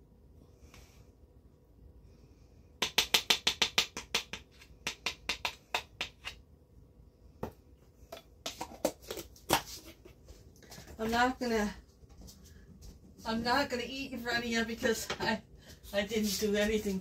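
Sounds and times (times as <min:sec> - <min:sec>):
spoon tapping plastic tub: 0:02.8 - 0:06.4.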